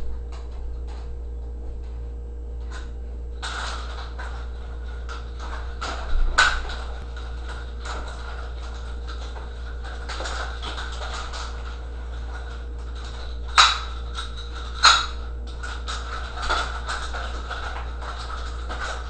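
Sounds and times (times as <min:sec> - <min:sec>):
low hum: 0:00.0 - 0:19.0
nunchucks clacking: 0:03.4 - 0:19.0
nunchucks swishing: 0:13.1 - 0:15.2.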